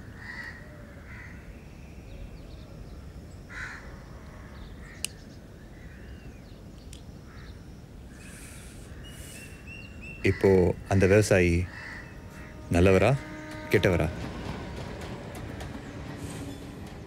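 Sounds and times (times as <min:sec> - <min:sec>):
outdoor ambience: 0:00.0 - 0:17.0
crows cawing: 0:00.2 - 0:01.4, 0:03.5 - 0:05.0, 0:10.3 - 0:10.8, 0:11.5 - 0:12.8.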